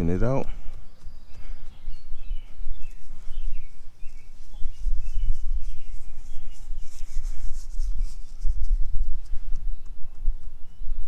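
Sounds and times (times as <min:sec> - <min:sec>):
birds chirping: 0:00.0 - 0:11.0
hand rustling soil: 0:02.7 - 0:09.5.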